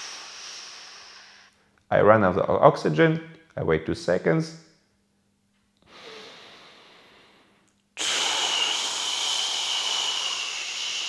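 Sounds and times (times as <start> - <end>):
man exhaling with a hiss: 0.0 - 1.6, 5.9 - 11.0
man inhaling through nose: 0.0 - 1.6, 5.8 - 11.0.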